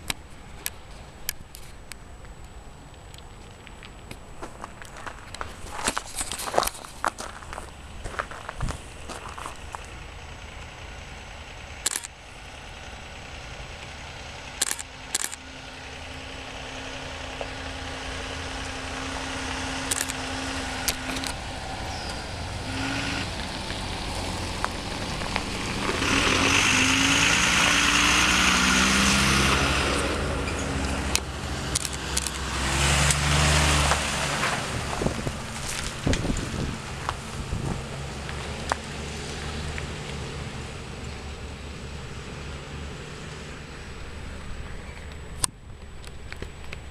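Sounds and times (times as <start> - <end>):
fire engine passing: 5.4 - 46.9
sharp clicks: 11.8 - 12.2, 14.6 - 15.4, 19.8 - 20.2, 30.8 - 32.4.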